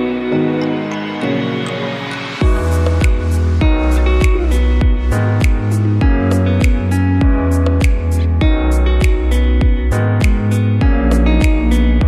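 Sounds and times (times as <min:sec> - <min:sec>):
music with steady beat: 0:00.0 - 0:12.0
deep bass: 0:02.4 - 0:12.0.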